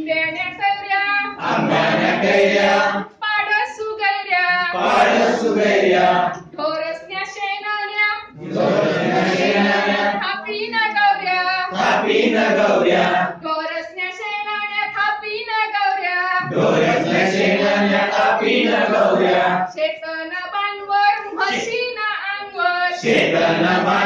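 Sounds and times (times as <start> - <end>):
group singing in response: 1.4 - 3.2, 4.7 - 6.5, 8.3 - 10.4, 11.7 - 13.4, 16.4 - 19.7, 22.9 - 24.0.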